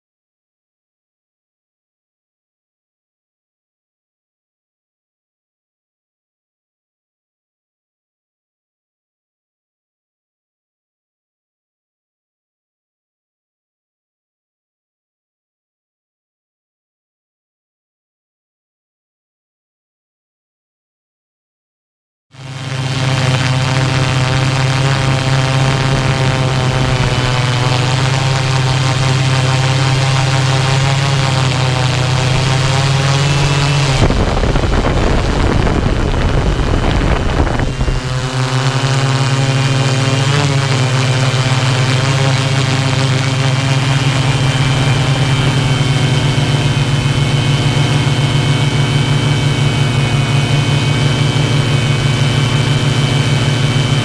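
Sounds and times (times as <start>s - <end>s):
drone propellers buzzing: 22.4s - 54.0s
rushing noise: 31.9s - 39.8s.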